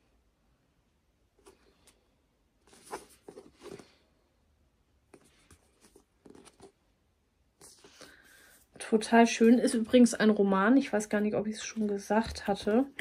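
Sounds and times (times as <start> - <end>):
book cover rustling: 2.6 - 4.0, 5.1 - 6.8, 7.6 - 10.1, 11.6 - 13.0.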